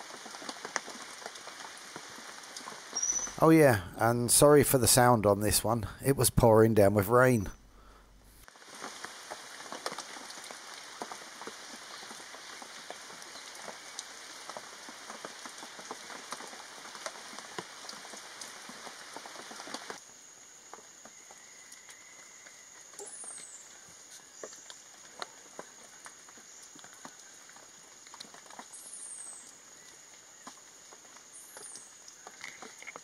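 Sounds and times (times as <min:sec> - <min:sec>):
louder rain splashes: 0:00.0 - 0:05.8, 0:08.4 - 0:20.1
rain pattering: 0:00.0 - 0:33.0.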